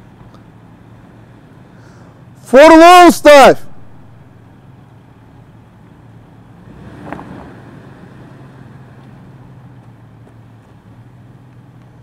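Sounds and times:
pickup engine idling: 3.8s - 12.0s.

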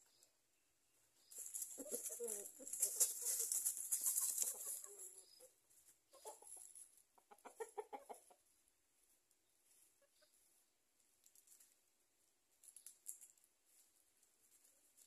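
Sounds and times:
chickens clucking: 1.0s - 11.8s.

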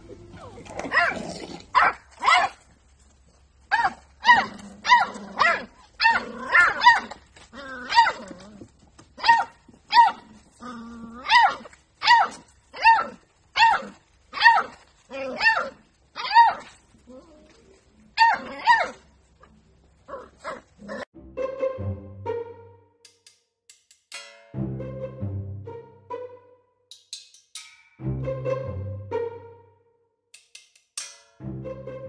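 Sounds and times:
puppy barking: 0.4s - 2.6s, 3.7s - 7.2s, 7.8s - 8.4s, 9.2s - 10.4s, 11.2s - 16.8s, 18.2s - 19.1s.

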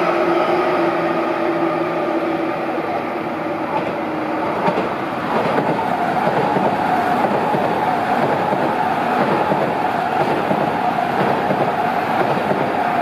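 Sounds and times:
trains humming with held tones: 0.0s - 13.0s
train wheels rumbling on rails: 0.1s - 13.0s.

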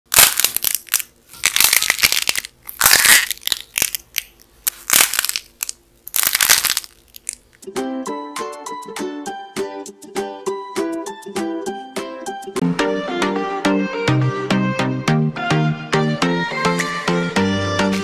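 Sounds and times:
dried clay cracking and crumbling: 0.1s - 7.5s.

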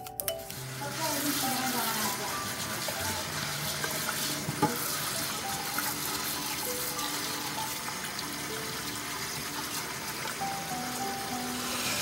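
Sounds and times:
background music: 0.0s - 12.0s
tap water splashing into pot: 3.8s - 5.0s.

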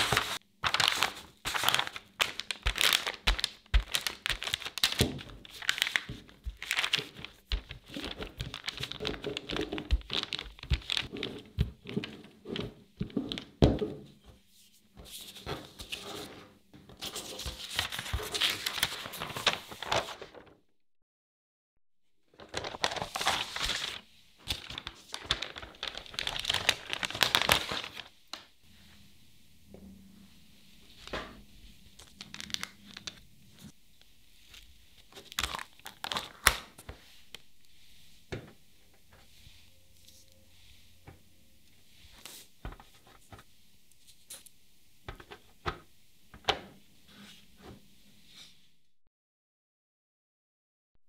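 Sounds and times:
paper crinkling: 0.0s - 13.6s, 17.0s - 20.5s, 22.3s - 28.5s, 31.8s - 37.8s.

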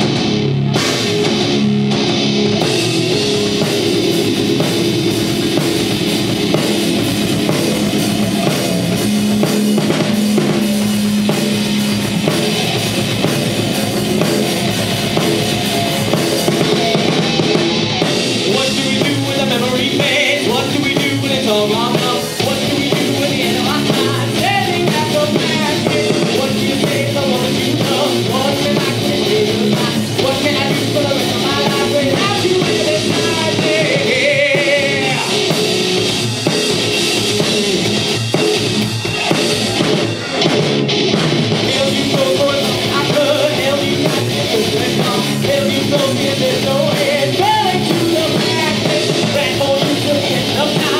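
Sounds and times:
bass guitar: 0.0s - 50.9s
drum kit: 0.0s - 50.9s
electric guitar: 0.0s - 50.9s
vocalist singing: 15.9s - 36.0s, 41.6s - 50.9s.

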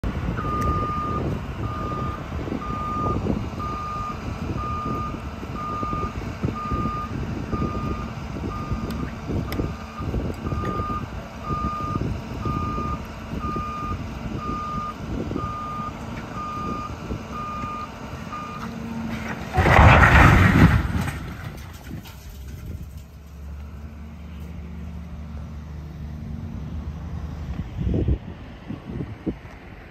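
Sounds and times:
excavator diesel engine: 0.0s - 29.9s
reversing alarm beeping: 0.4s - 9.0s, 10.0s - 18.6s
rumbling and clattering debris: 18.6s - 23.8s
building collapsing crash: 19.1s - 23.1s.

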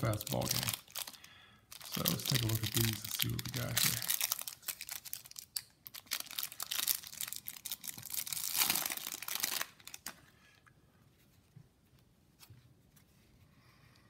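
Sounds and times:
wrapper tearing and crinkling: 0.0s - 10.2s.

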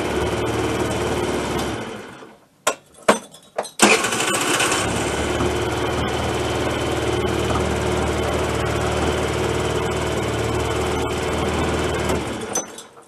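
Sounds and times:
scooter engine running: 3.9s - 12.5s.

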